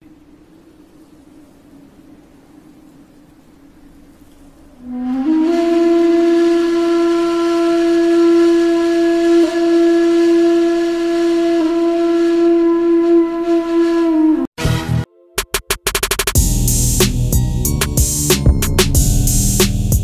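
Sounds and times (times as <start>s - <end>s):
long held musical note: 4.6s - 20.0s.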